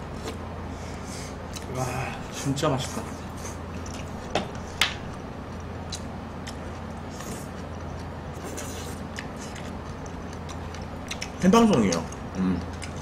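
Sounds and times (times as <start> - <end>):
chewing and slurping: 5.4 - 13.0.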